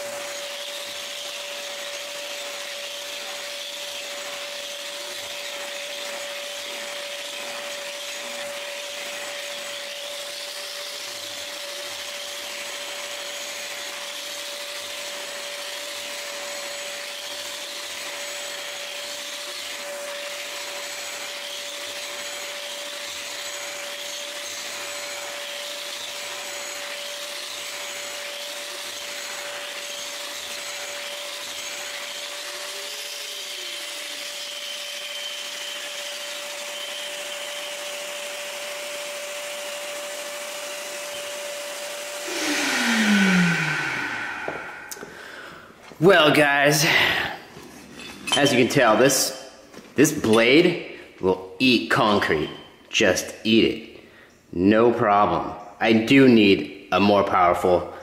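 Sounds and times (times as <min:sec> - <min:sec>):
angle grinder grinding concrete: 0:00.0 - 0:50.9
shop vac drawing air: 0:40.8 - 0:47.6.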